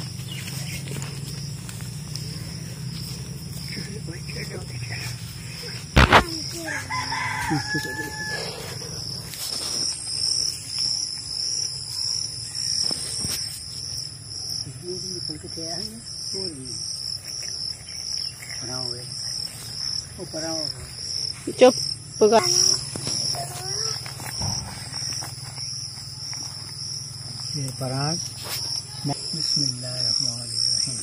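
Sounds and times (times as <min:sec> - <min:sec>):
insects chirring: 0:00.0 - 0:31.0
sharp knock: 0:06.0 - 0:06.4
rooster crowing: 0:06.6 - 0:08.9.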